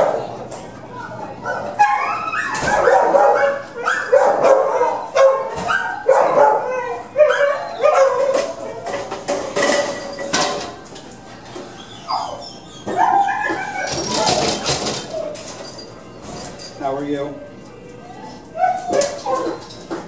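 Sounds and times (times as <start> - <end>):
dogs barking: 0.0 - 0.4, 1.4 - 9.1, 11.8 - 15.5, 18.5 - 19.9.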